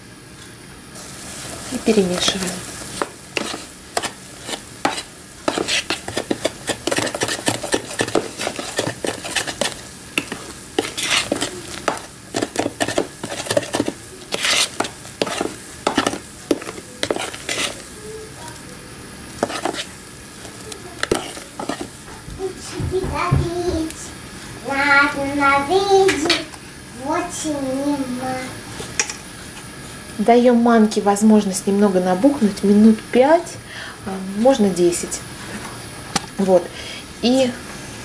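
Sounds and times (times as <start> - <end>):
metal spoon stirring in bowl: 2.1 - 18.6, 19.3 - 20.0, 21.0 - 22.0.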